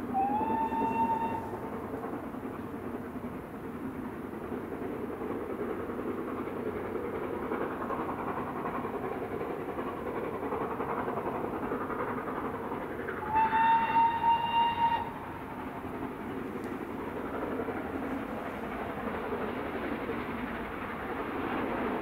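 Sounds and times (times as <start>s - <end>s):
steam whistle blast: 0.0s - 1.6s, 13.2s - 15.2s
steam locomotive exhaust rumble: 0.0s - 22.0s.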